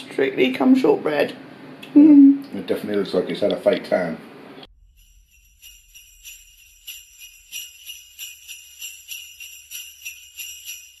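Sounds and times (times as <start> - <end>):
jingle bells shaken: 4.8 - 11.0.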